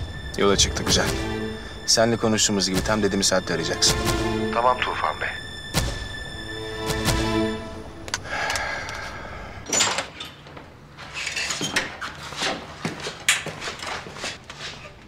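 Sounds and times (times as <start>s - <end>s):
light footsteps: 10.4s - 15.0s.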